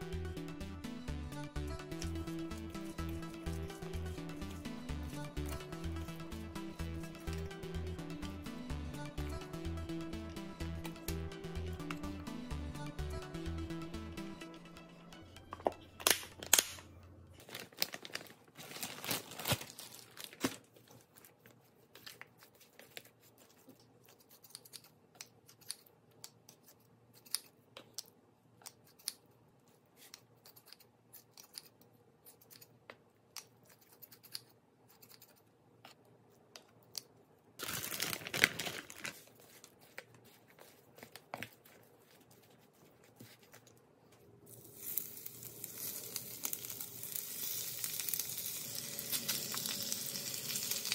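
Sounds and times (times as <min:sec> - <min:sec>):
loud crinkling rustle: 0:17.4 - 0:21.3
chicken sizzling in a pan: 0:44.6 - 0:50.9.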